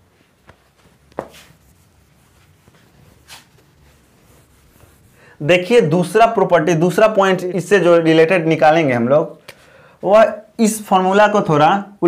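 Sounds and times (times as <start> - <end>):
quiet room noise: 0.0 - 12.0
duster scrubbing whiteboard: 0.3 - 5.7.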